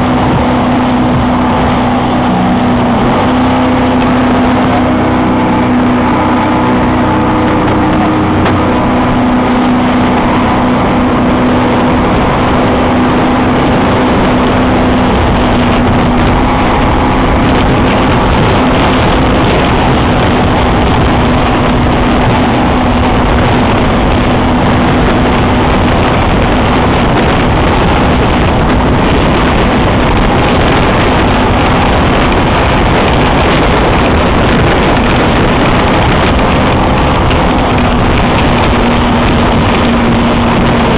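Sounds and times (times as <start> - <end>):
outboard motor running: 0.0 - 40.9
rushing water: 0.0 - 40.9
wind on microphone: 0.0 - 40.9.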